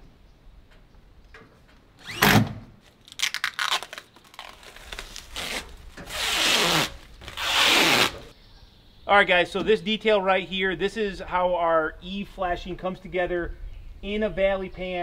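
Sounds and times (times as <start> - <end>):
plastic film crinkling: 2.8 - 8.3
plastic film ripping off: 2.8 - 8.3.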